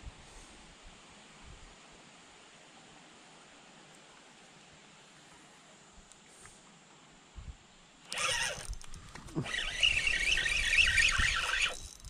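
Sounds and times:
fishing reel buzzing: 8.1s - 12.0s.

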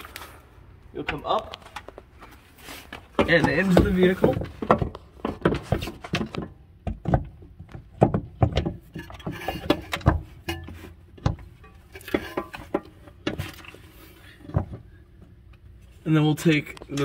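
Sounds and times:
metal knocks and clunks: 3.0s - 13.8s, 14.4s - 15.3s.

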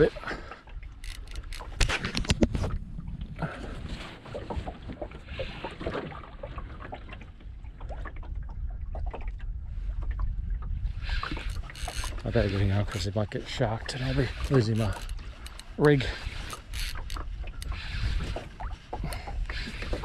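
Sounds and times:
wind and water rumble: 0.0s - 20.0s
fishing reel clicking: 1.0s - 1.9s, 11.1s - 13.1s, 13.9s - 18.3s.

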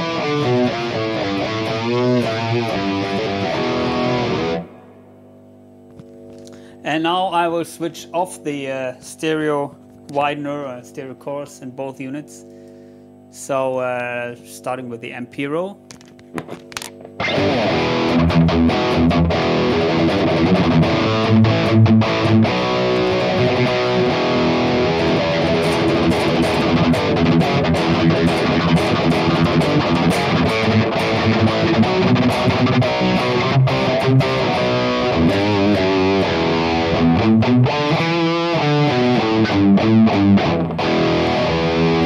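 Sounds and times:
distorted electric guitar riff: 0.0s - 6.8s, 16.5s - 42.0s.

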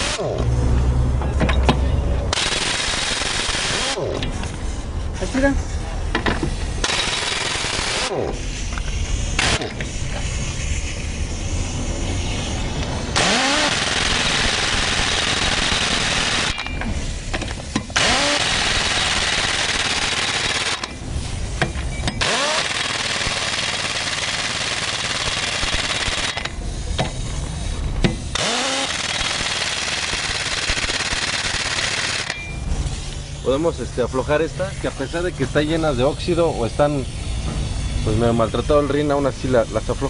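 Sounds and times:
pneumatic impact wrench: 0.0s - 0.5s, 2.3s - 4.8s, 6.2s - 33.5s.

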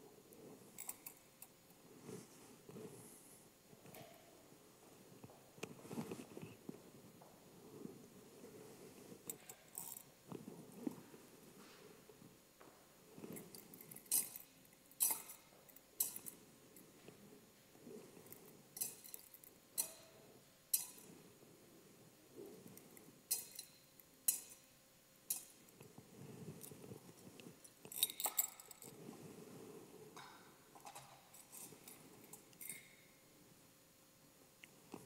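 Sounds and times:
sharp small clicks and clinks: 13.3s - 16.4s, 18.3s - 21.2s, 22.8s - 24.7s, 25.3s - 25.6s, 27.7s - 29.0s.

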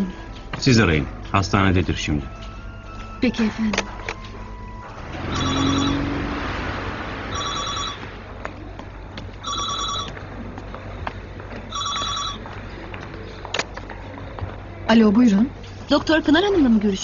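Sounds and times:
desk telephone ringing: 5.3s - 6.1s, 7.3s - 8.1s, 9.4s - 10.1s, 11.7s - 12.4s.

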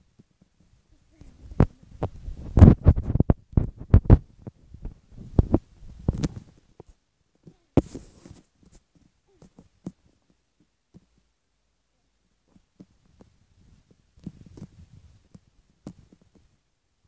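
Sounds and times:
clothing rustle: 0.2s - 11.2s.

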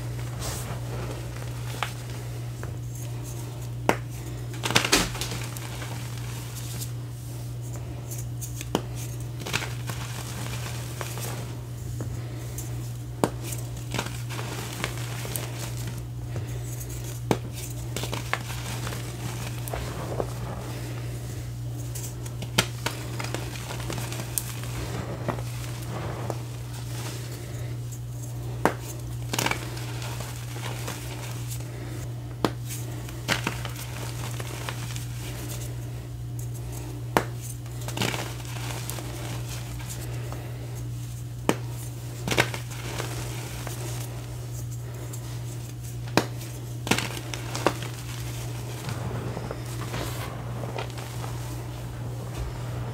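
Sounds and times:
chalk crumbling and crunching: 0.0s - 52.9s
steady low hum: 0.0s - 52.9s
chalk pieces snapping: 3.8s - 6.1s, 22.3s - 24.6s.

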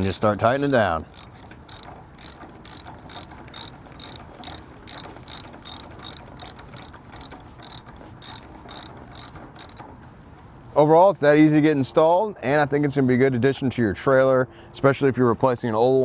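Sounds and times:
socket ratchet clicking: 0.5s - 9.8s.

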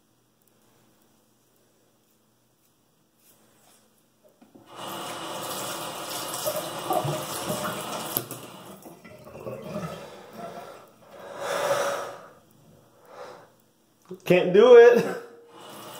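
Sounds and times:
tap water running: 4.3s - 12.3s, 15.5s - 15.9s
razor rinsed under water: 4.6s - 11.4s.

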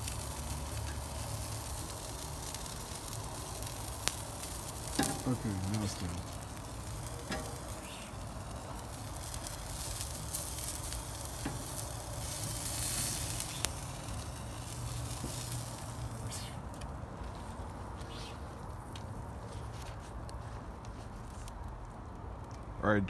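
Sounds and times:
wood fire hissing and crackling: 0.0s - 23.0s
sharp pop of fire: 4.0s - 8.2s.

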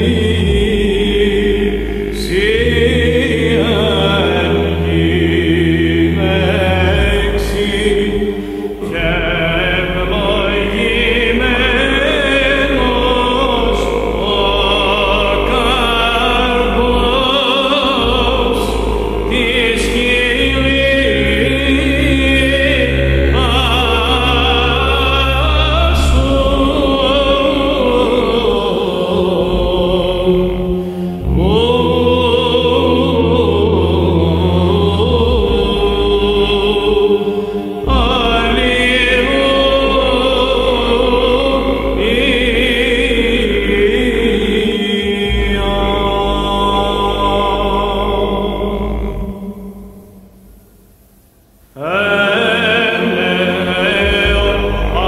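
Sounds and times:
solo cantor chanting melody: 0.0s - 50.3s, 51.7s - 55.0s
deep bass vocal drone: 0.0s - 50.4s, 51.8s - 55.0s.

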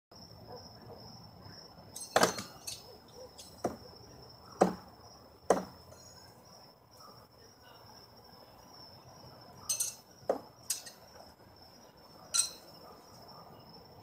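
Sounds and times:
crickets trilling: 0.1s - 14.0s
knives thudding into wood: 2.0s - 3.9s, 4.6s - 4.9s, 5.5s - 5.8s.

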